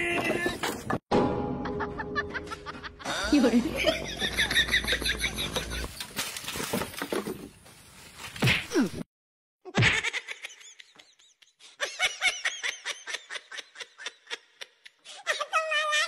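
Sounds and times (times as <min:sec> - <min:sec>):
ha-ha laughter: 0:01.6 - 0:05.9, 0:09.7 - 0:16.0.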